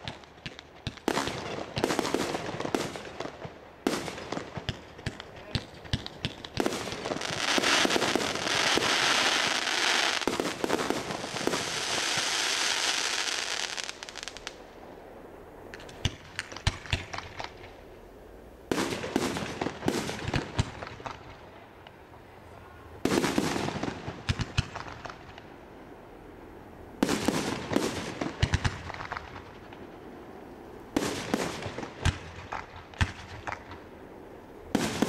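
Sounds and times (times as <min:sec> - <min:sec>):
fireworks crackling: 0:00.0 - 0:35.0
fireworks shells bursting bangs: 0:34.7 - 0:35.0.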